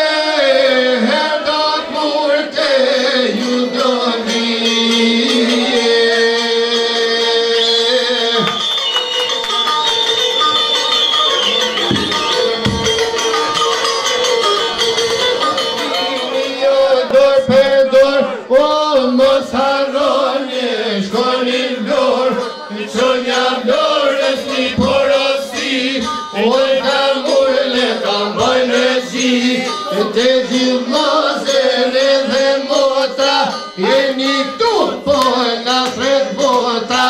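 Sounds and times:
men singing in unison: 0:00.0 - 0:08.7, 0:16.4 - 0:37.0
music: 0:00.0 - 0:37.0.

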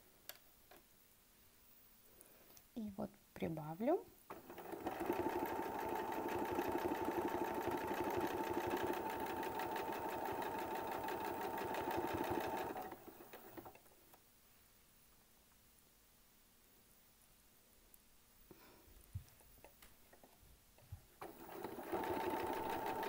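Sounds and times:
sewing machine running: 0:04.3 - 0:13.8, 0:21.2 - 0:23.0.

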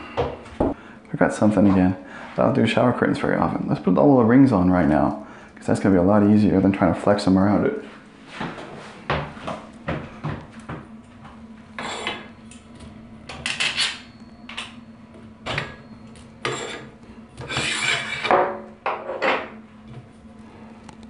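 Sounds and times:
curtain rings scraping on metal rod: 0:11.8 - 0:12.3, 0:16.4 - 0:18.3.

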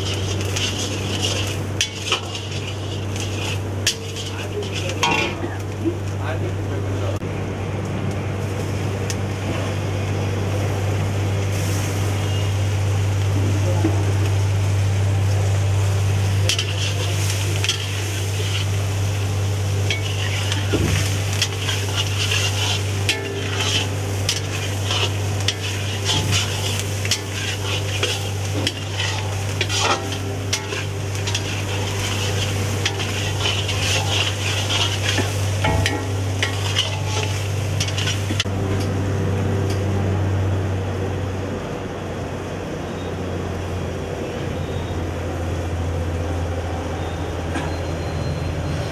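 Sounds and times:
metal ladle stirring and scraping: 0:00.0 - 0:05.4, 0:16.4 - 0:38.5
frying sizzle: 0:00.0 - 0:07.2, 0:08.2 - 0:41.4
steady low hum: 0:00.0 - 0:47.1.

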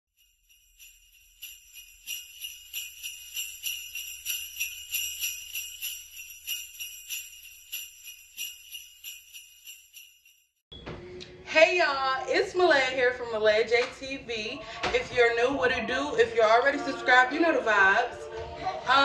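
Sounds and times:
sleigh bells jingling: 0:00.2 - 0:10.6.

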